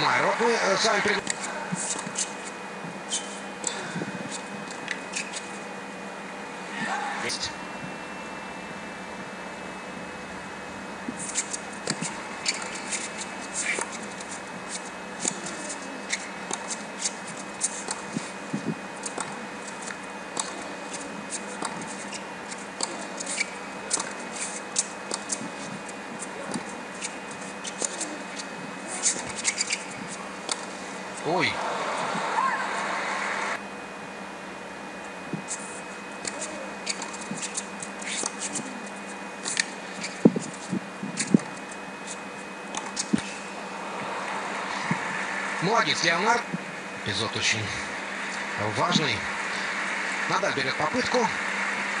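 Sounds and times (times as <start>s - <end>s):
faint steady hum: 0.0s - 52.0s
shoes squeaking on court: 1.3s - 5.7s, 11.1s - 31.3s, 35.4s - 43.7s.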